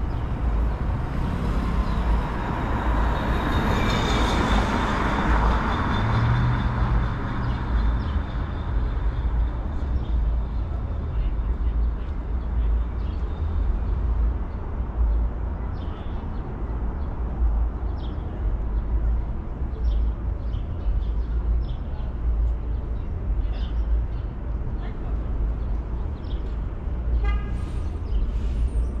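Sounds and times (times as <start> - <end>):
city traffic rumble: 0.0 - 29.0
vehicle horn toot: 27.2 - 27.7.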